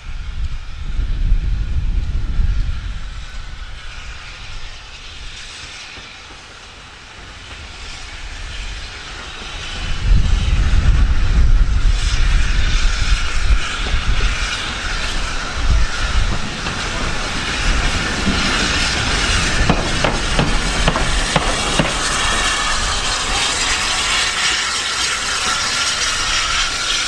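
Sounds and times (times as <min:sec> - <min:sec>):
steam train running: 0:00.0 - 0:27.0
wind buffeting microphone: 0:00.0 - 0:27.0.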